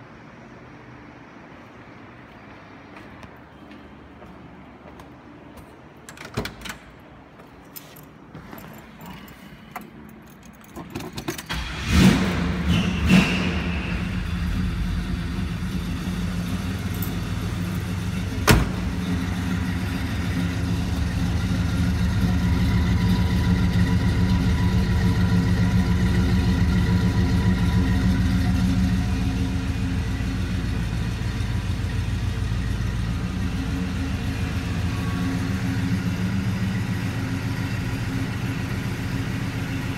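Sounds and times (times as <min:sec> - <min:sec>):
car engine starting and idling: 0:10.4 - 0:39.9.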